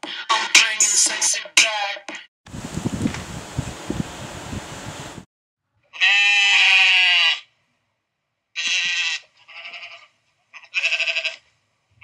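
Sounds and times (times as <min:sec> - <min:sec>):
goat bleating: 0:05.9 - 0:07.5, 0:08.6 - 0:11.5.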